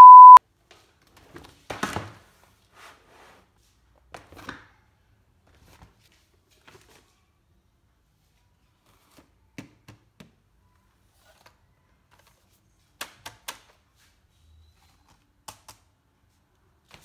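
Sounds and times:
test-tone beep: 0.0s - 0.4s.

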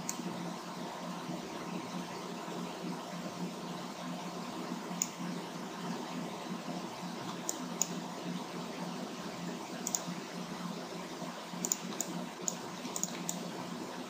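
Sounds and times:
low room hum: 0.0s - 14.0s
computer mouse buttons clicking: 7.3s - 8.0s, 9.8s - 10.1s, 11.6s - 13.4s.

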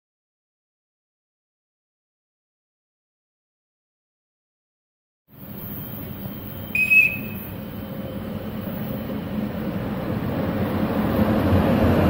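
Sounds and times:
train rumbling into station: 5.3s - 12.0s
high train toot: 5.4s - 9.1s.

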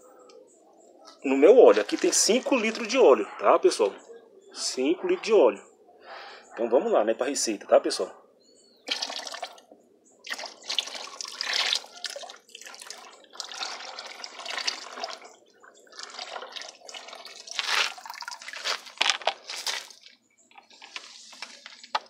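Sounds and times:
liquid pouring and splashing into oil: 8.9s - 9.6s, 10.2s - 19.0s.

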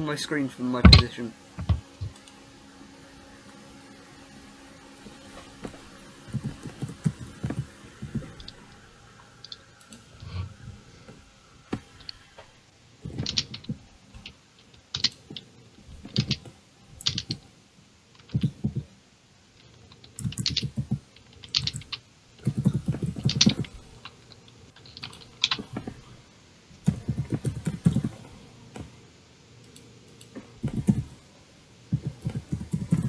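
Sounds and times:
keyboard typing: 13.1s - 13.8s, 17.0s - 17.4s, 20.0s - 23.8s, 32.0s - 33.0s.

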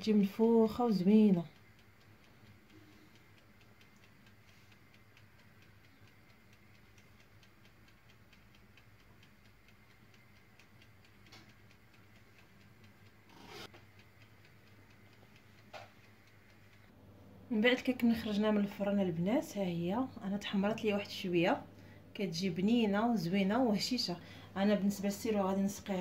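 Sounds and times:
clockwork ticking: 0.0s - 17.0s, 17.6s - 26.0s
low steady hum: 0.0s - 26.0s.

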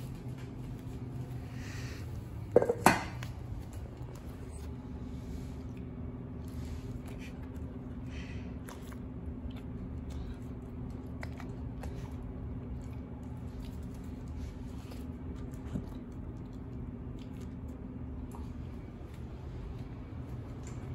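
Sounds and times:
steady low hum: 0.0s - 20.9s
dog crunching dry kibble: 6.9s - 20.9s.

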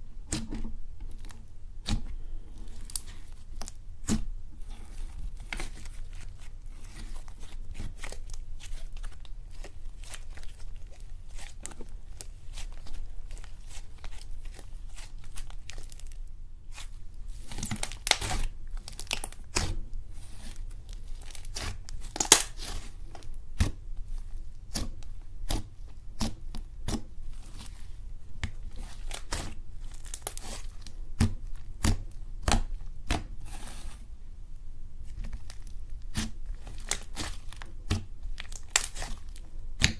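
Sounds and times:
slime crackling and popping: 2.7s - 4.3s, 4.9s - 23.8s, 28.4s - 33.3s, 35.1s - 39.9s.

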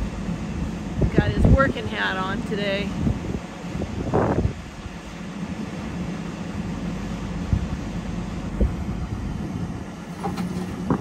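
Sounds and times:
diesel engine running: 0.0s - 11.0s.

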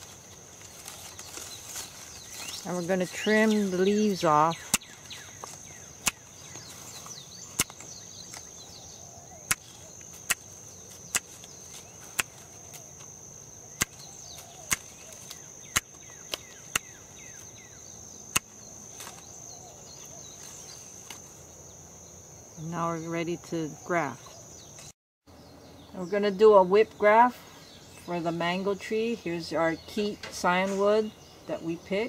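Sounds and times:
pruning shears snipping: 0.0s - 8.5s, 9.5s - 13.1s, 13.7s - 17.0s, 18.3s - 19.2s
high insect trill: 0.0s - 32.0s.

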